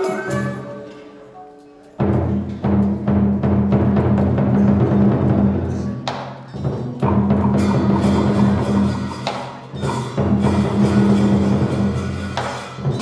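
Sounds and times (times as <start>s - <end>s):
deep drums playing: 2.0s - 5.9s, 6.8s - 13.0s
sharp drum strike: 7.0s - 13.0s.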